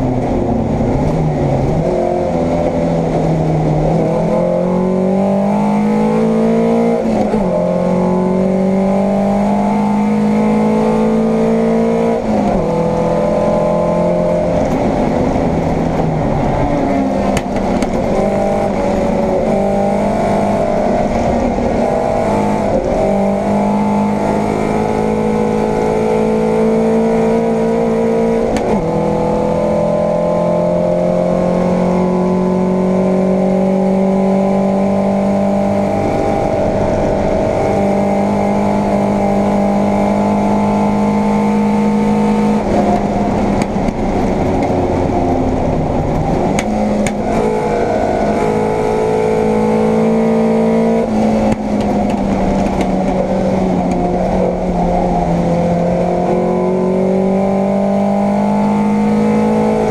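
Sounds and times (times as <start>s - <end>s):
race car engine accelerating: 0.0s - 59.9s.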